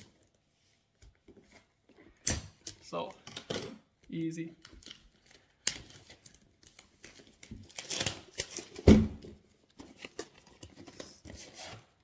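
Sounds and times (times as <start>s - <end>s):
cardboard packaging rustling: 4.6s - 12.0s.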